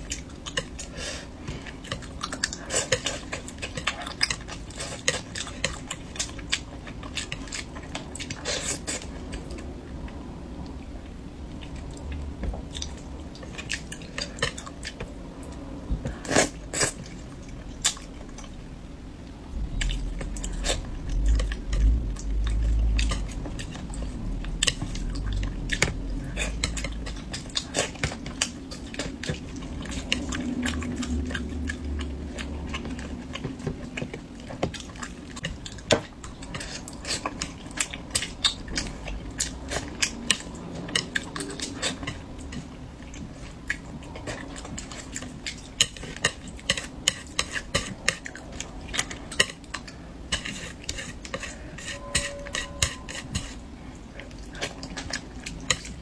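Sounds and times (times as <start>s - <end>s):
person chewing food: 0.0s - 18.6s, 19.2s - 56.0s
low rumble: 18.4s - 27.6s, 29.2s - 34.5s
utensils clinking on dish: 50.3s - 53.6s.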